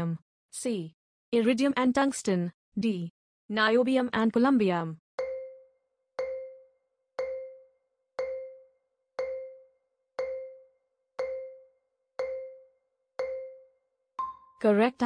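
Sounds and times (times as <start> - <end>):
countdown timer ticks: 5.2 - 14.7.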